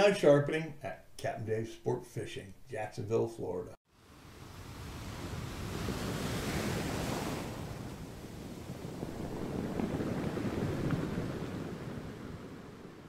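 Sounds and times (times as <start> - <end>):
ocean surf washing onto beach: 4.0 - 13.0.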